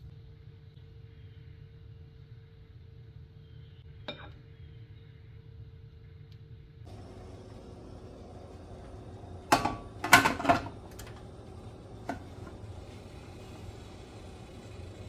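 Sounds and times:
steady low hum: 0.0 - 15.0
metal pot clanking: 9.4 - 13.0.

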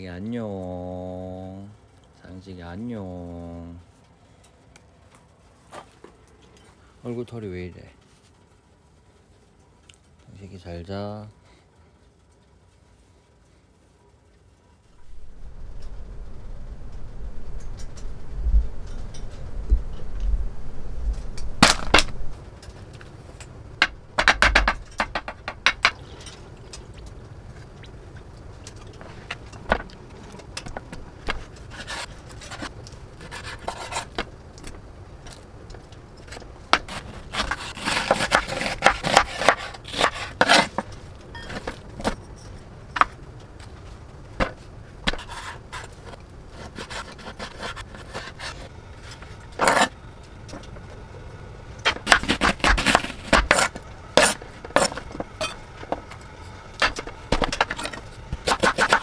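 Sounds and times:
knife chopping on wooden board: 51.9 - 55.0.

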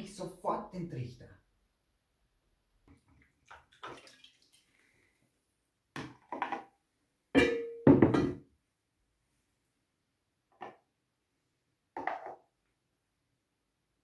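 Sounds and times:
bottle knocking on metal tray: 7.4 - 8.4.

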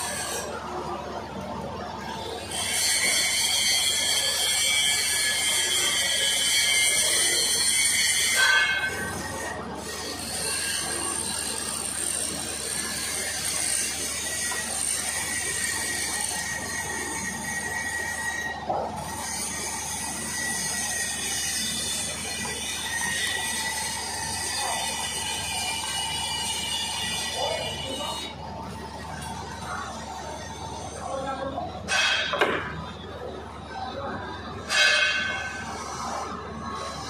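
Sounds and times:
shop background noise: 0.0 - 37.0
arc welding crackle and hiss: 2.0 - 31.0.

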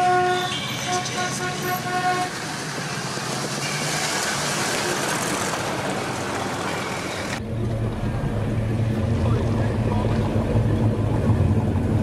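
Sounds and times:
low engine rumble: 4.7 - 12.0.

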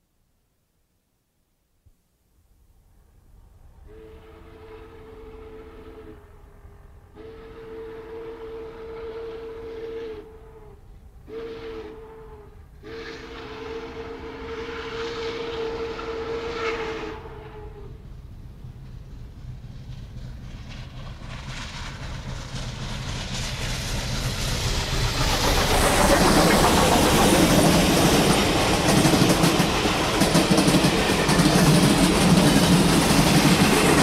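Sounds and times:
train rumbling: 2.9 - 34.0
steam locomotive chime whistle: 3.9 - 18.0.

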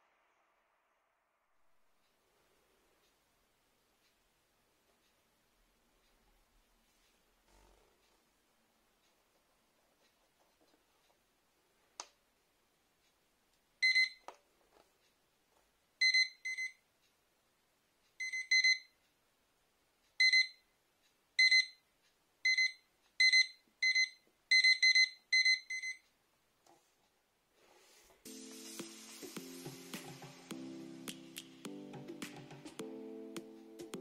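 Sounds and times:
alarm clock beeping: 13.8 - 14.2, 16.0 - 16.8, 18.2 - 18.9, 20.2 - 20.6, 21.4 - 21.8, 22.4 - 26.0.

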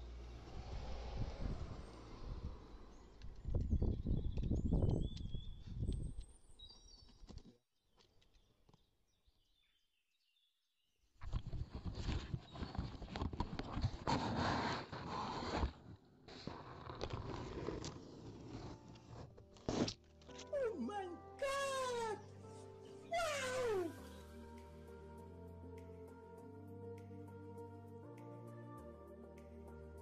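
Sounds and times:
cardboard parcel crackling rustle: 11.4 - 20.5.

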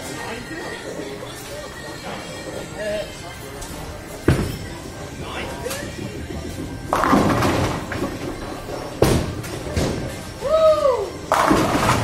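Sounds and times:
bowling ball striking pins: 4.2 - 10.4, 11.3 - 12.0.

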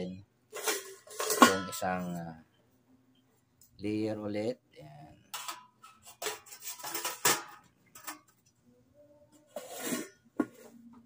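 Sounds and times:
metal scraping: 0.5 - 2.3, 5.2 - 8.3, 9.5 - 10.8.

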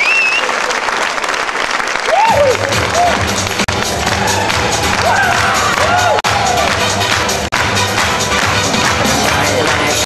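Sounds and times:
audience applause and cheering: 0.0 - 10.0
dance music over sound system: 2.2 - 10.0.

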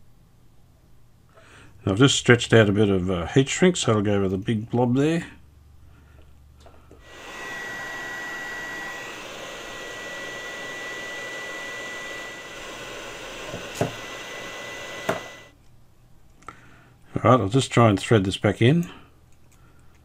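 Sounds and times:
heat gun blowing: 7.0 - 15.5.

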